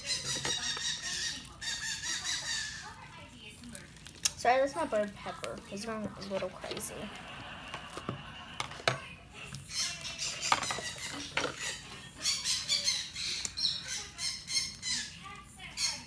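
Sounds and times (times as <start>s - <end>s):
pet bird squawking: 0.0s - 3.1s, 9.6s - 16.0s.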